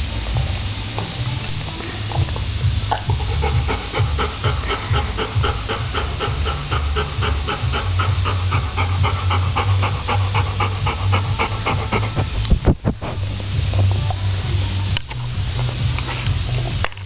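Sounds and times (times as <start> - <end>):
dog panting fast: 3.1 - 13.2.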